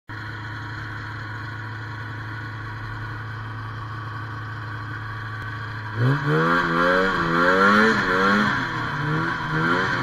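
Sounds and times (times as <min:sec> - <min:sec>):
snowmobile engine idling: 0:00.1 - 0:08.0.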